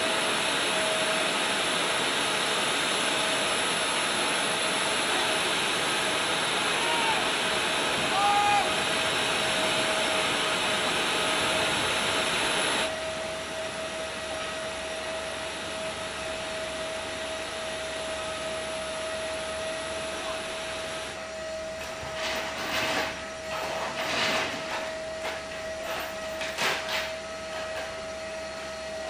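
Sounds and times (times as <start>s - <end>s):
turbine rushing hiss: 0.0s - 13.2s
turbine high whine: 0.0s - 29.0s.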